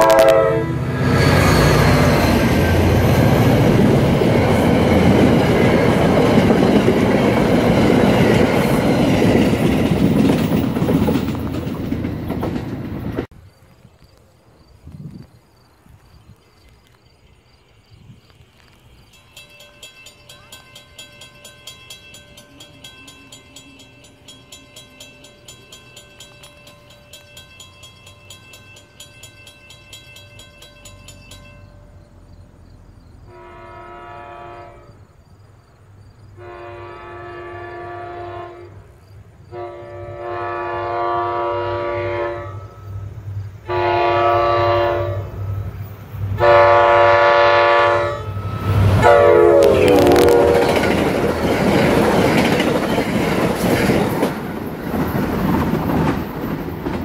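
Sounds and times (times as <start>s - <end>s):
train air horn blasts: 0.0s - 2.9s, 33.3s - 35.0s, 36.4s - 38.9s, 39.5s - 45.6s, 46.4s - 50.9s
bell dinging: 19.1s - 32.4s.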